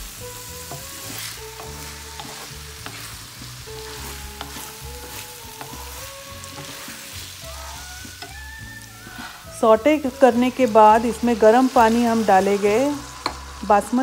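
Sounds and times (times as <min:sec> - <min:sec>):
rice and vegetables sizzling: 0:00.0 - 0:14.0
spatula scraping pan: 0:00.3 - 0:14.0.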